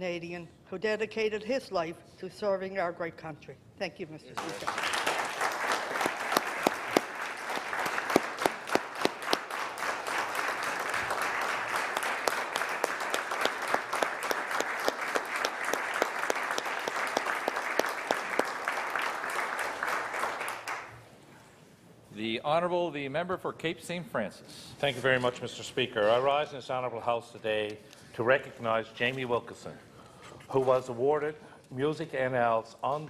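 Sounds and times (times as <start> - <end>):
single loud claps: 4.4 - 18.5
crowd applauding: 4.4 - 21.0.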